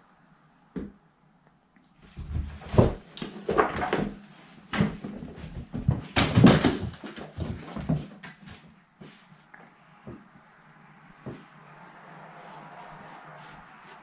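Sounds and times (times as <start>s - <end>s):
cats scuffling and thumping: 2.0s - 10.3s.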